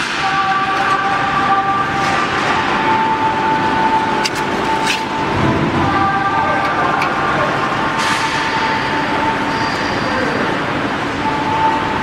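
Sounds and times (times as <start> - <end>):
factory machinery noise: 0.0 - 12.0.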